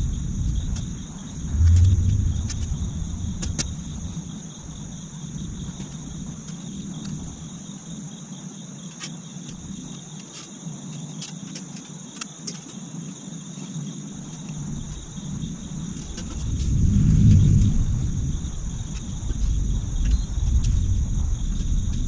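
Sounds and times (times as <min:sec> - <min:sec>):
low rumble: 0:00.0 - 0:06.3, 0:15.3 - 0:22.0
crickets chirring: 0:00.0 - 0:22.0.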